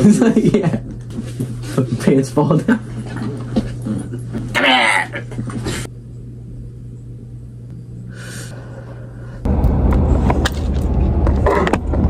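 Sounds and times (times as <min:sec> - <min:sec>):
car engine and road rumble: 0:09.4 - 0:12.0.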